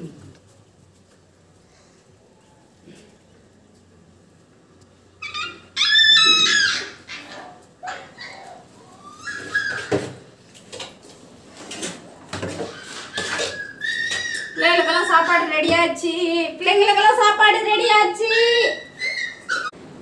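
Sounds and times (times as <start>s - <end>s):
puppies whining and yelping: 5.2s - 10.0s, 12.6s - 15.6s, 18.2s - 19.8s.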